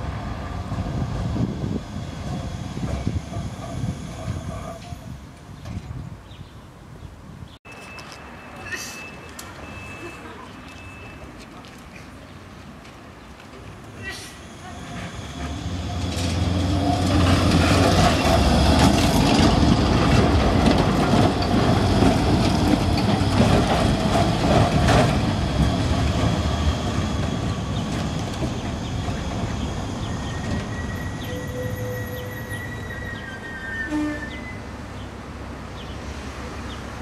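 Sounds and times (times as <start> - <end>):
electric tram passing: 0.0 - 6.2, 7.7 - 37.0
wheels clacking on track: 14.6 - 32.8.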